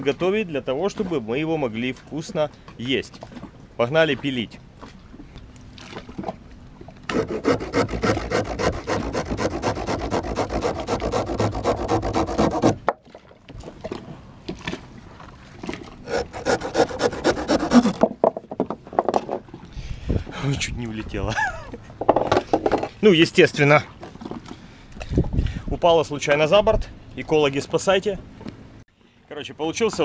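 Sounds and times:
hand saw cutting sugarcane: 7.1s - 12.9s, 16.0s - 18.0s.

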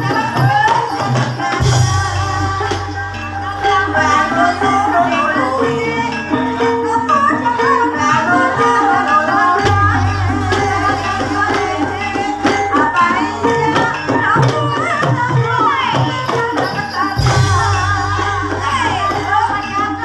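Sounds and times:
gamelan music: 0.0s - 20.0s
drum strokes: 9.4s - 20.0s.

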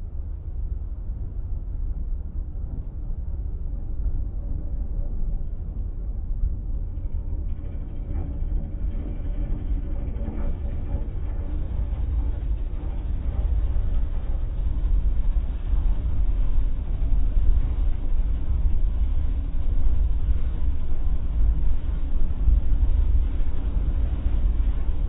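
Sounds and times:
car wash machinery rumbling: 7.0s - 25.0s.

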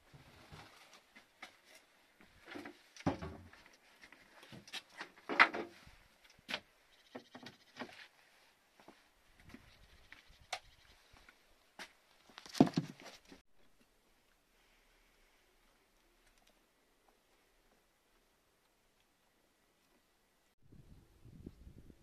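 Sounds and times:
sacks and plastic buckets clunking: 2.4s - 3.6s.

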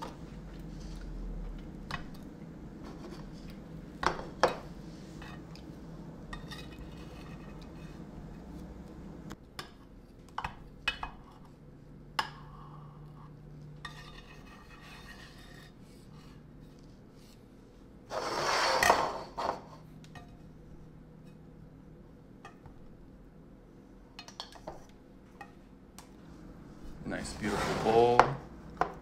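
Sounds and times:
dish scraping on table: 18.1s - 19.8s, 27.2s - 28.4s.

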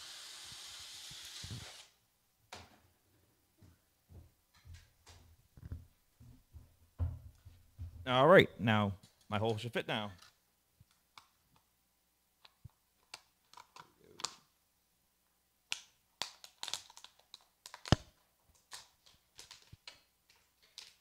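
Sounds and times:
plastic bottle crinkling: 16.2s - 21.0s.

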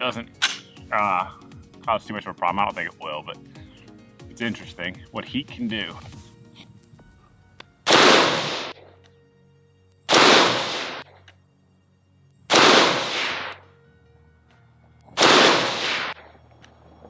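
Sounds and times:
rifle shots with echo: 7.9s - 8.9s, 10.1s - 11.1s, 12.5s - 13.6s, 15.2s - 16.4s.

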